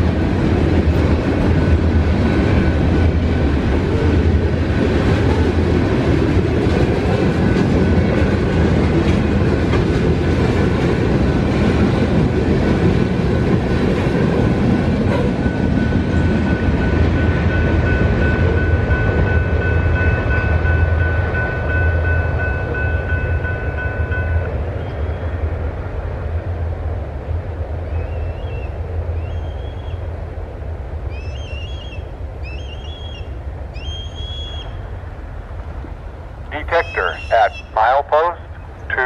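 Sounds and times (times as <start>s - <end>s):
freight train rumbling past: 0.0s - 39.0s
crossing warning bell ringing: 14.6s - 24.7s.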